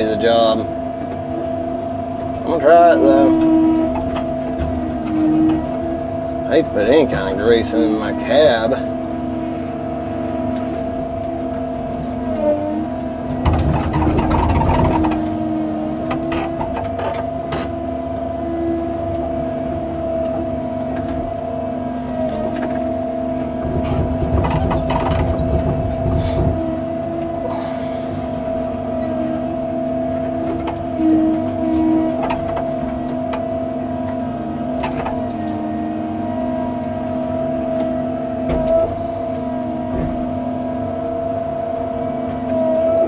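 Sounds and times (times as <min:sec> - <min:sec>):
excavator engine running: 0:00.0 - 0:43.0
hydraulic whine: 0:00.0 - 0:43.0
excavator knocks: 0:13.4 - 0:15.3, 0:23.6 - 0:27.6.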